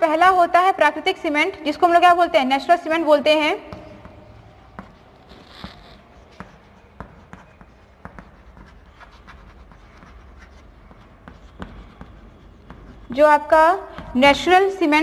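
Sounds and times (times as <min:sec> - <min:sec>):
chalk tapping and scraping on chalkboard: 0:03.7 - 0:15.0.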